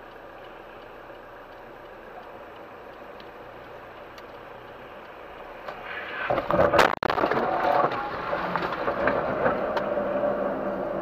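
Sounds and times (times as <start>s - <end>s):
car driving on wet road: 0.0s - 11.0s
car crash crumpling metal: 6.2s - 9.7s.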